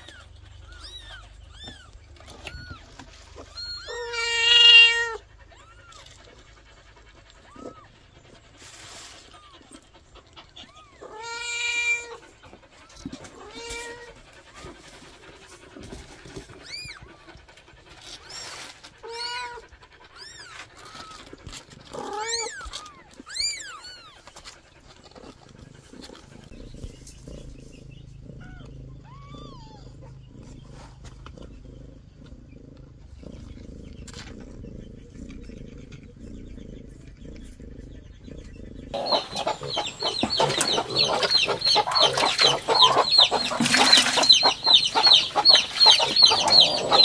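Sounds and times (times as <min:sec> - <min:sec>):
kittens mewing: 0:00.0 - 0:08.0, 0:27.5 - 0:30.9, 0:38.8 - 0:47.0
cat purring: 0:24.8 - 0:47.0.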